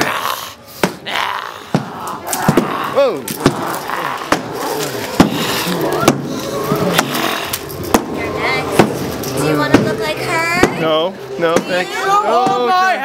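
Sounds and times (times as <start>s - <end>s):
wailing and moaning voices: 0.0s - 8.7s.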